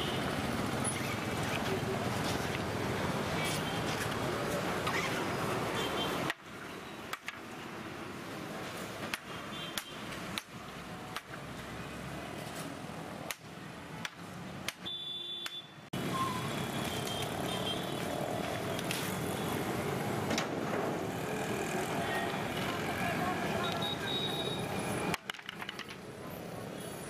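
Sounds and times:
street traffic: 0:00.0 - 0:27.0
sharp clicks and knocks: 0:25.1 - 0:26.0.

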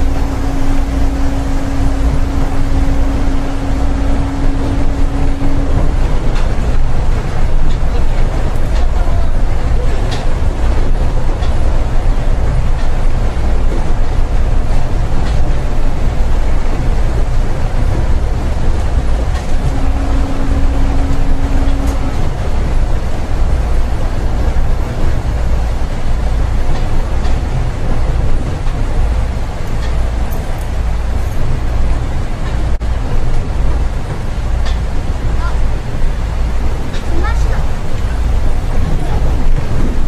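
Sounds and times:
steady tone: 0:00.0 - 0:09.0, 0:17.7 - 0:26.2
train running low rumble: 0:00.0 - 0:40.0.

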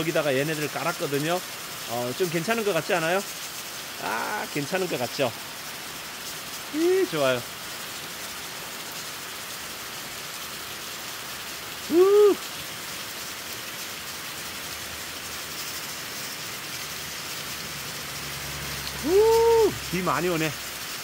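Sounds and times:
heavy rain pouring: 0:00.0 - 0:21.0
man exclaiming: 0:04.0 - 0:05.0, 0:06.8 - 0:07.4, 0:11.8 - 0:12.4, 0:19.0 - 0:20.5.

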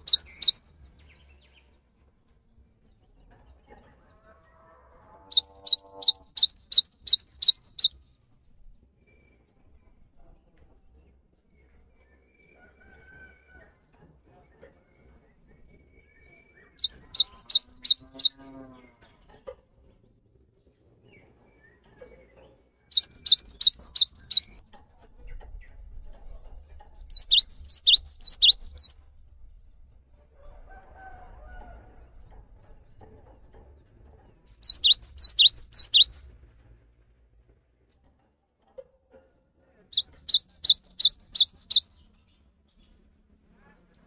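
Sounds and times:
bird singing high sharp notes: 0:00.0 - 0:00.7, 0:05.3 - 0:08.0, 0:16.8 - 0:18.4, 0:23.0 - 0:24.5, 0:27.0 - 0:29.0, 0:34.5 - 0:36.2, 0:40.0 - 0:42.0.

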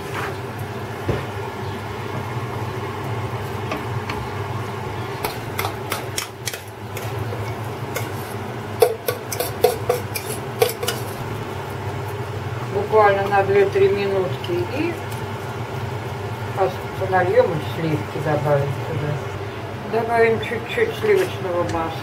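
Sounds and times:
spatula scraping frying pan: 0:06.9 - 0:11.2
utensil knocking enamel bowl: 0:08.8 - 0:11.0.

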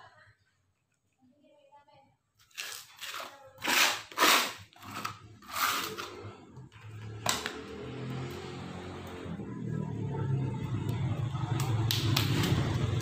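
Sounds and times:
potting soil scraping rustles: 0:02.5 - 0:06.4
low background music: 0:07.0 - 0:13.0.

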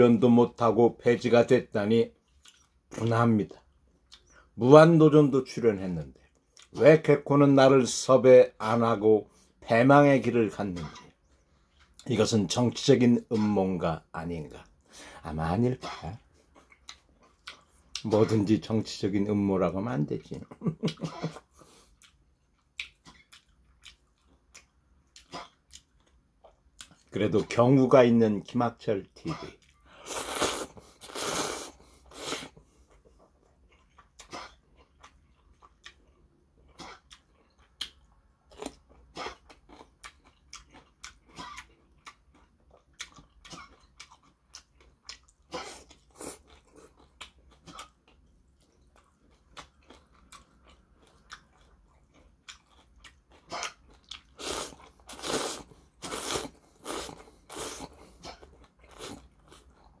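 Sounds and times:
slurping noodles and chewing: 0:29.3 - 1:00.0.

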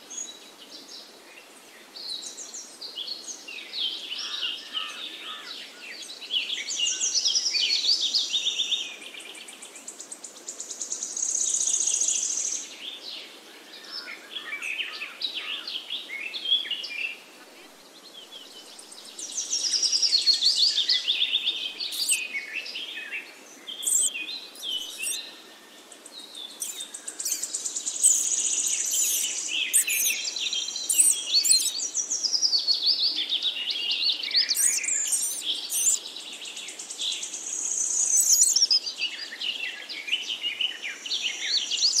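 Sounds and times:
small birds chirping: 0:18.2 - 0:22.3, 0:23.5 - 0:42.0.

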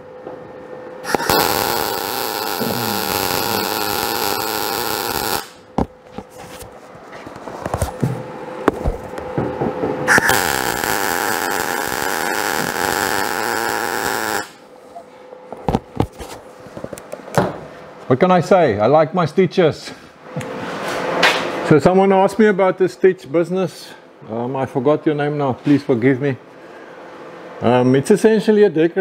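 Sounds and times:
welder buzzing: 0:01.0 - 0:05.8, 0:10.1 - 0:14.7.

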